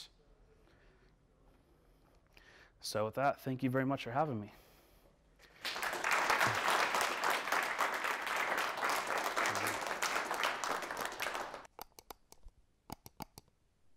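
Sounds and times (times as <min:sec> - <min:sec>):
audience applauding: 0:05.5 - 0:11.7.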